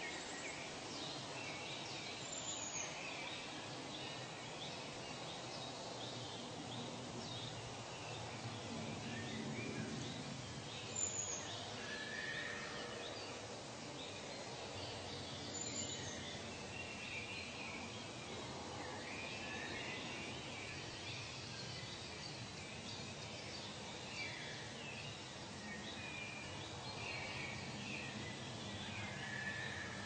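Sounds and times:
steady background hiss: 0.0 - 30.0.

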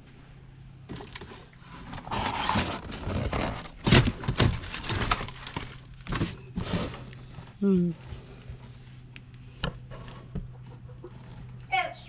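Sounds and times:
cardboard box being handled: 0.9 - 8.8.

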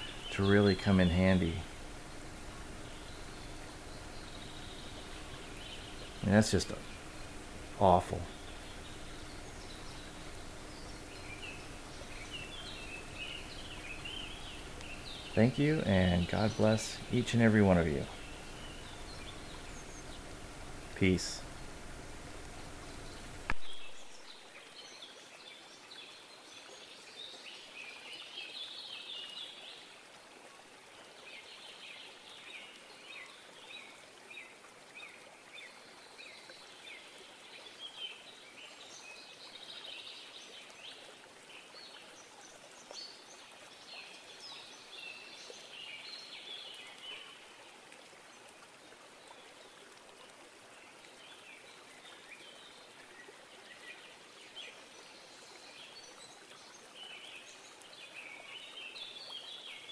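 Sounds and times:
small animals chirping and trilling: 0.0 - 23.5
soft steady hiss: 0.0 - 59.9.

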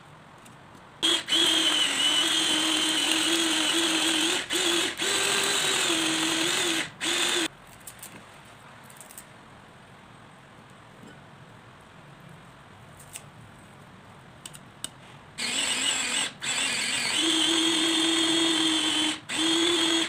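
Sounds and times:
food chopper whirring: 1.0 - 7.5, 15.4 - 20.0.

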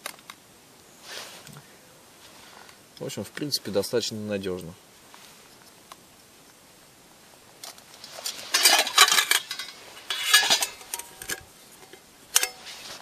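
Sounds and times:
metal pots clinking and scraping: 8.0 - 13.0.

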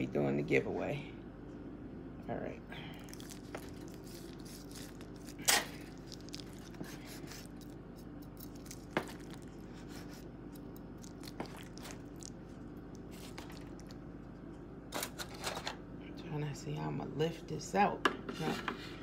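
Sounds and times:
steady low hum: 0.0 - 19.0
foil clicks and crinkles: 3.1 - 7.6.

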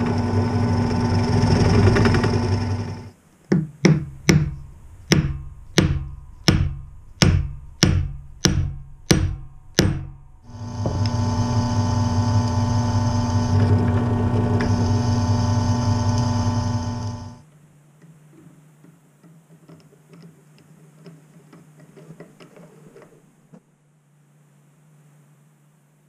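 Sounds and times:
drill press boring wood: 0.0 - 3.1, 10.5 - 17.4.

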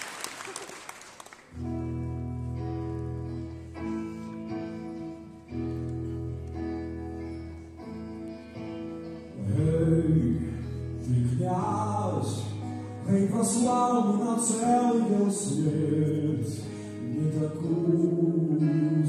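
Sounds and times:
man singing: 9.3 - 19.0.

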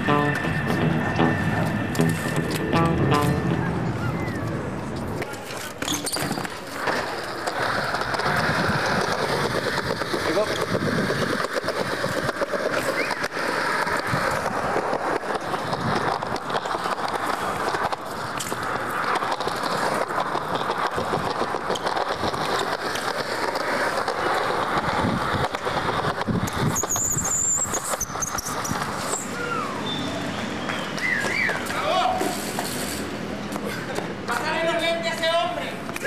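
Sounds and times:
bicycle tyres rolling on concrete: 0.0 - 36.0
high tyre squeal: 3.4 - 5.2, 12.8 - 14.0, 26.6 - 33.0.

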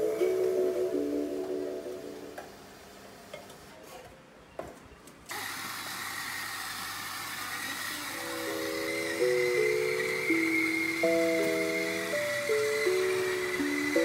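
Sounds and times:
music with plucked notes: 0.0 - 2.5, 8.4 - 14.0
electric coffee grinder whining: 5.3 - 14.0.

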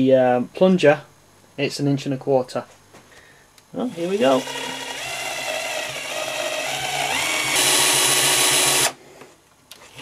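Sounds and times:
power drill boring into plastic: 3.9 - 9.0.

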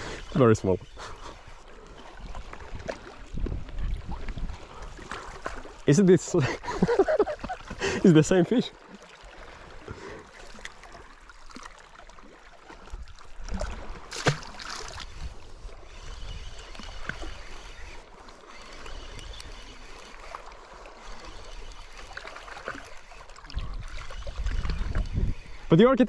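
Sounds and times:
fishing reel whirring: 0.0 - 3.3, 13.8 - 26.0
seawater lapping on rocks: 0.0 - 25.7
wind on the microphone: 2.2 - 5.1, 23.5 - 25.7.

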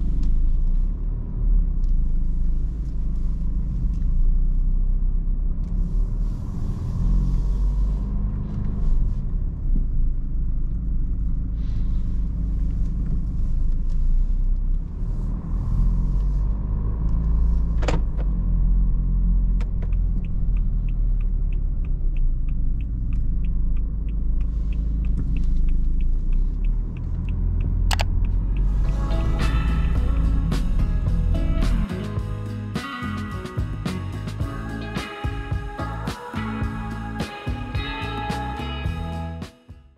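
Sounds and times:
car engine and road rumble: 0.0 - 39.9
light regular ticking: 18.4 - 29.3
sharp clicks: 19.5 - 28.8.

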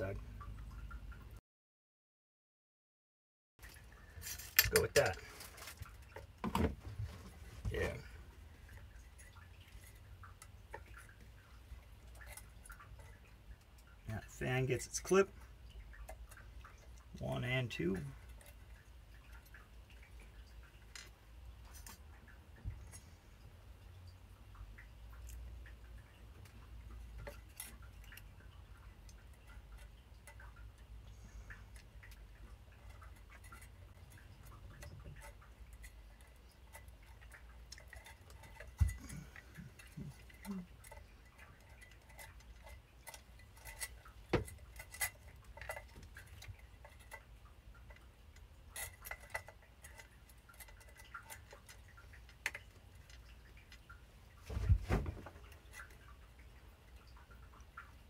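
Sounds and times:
plastic fan clicks and taps: 4.6 - 6.9, 32.8 - 48.1.

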